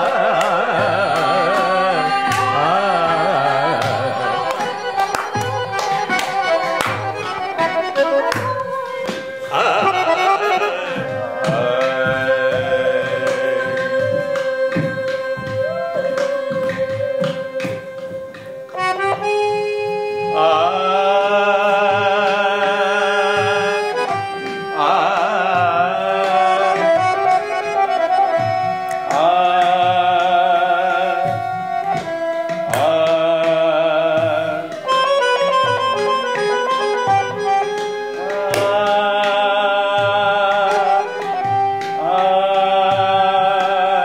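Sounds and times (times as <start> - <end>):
accordion music: 0.0 - 44.0
hand drum taps: 3.8 - 19.3, 31.2 - 33.6.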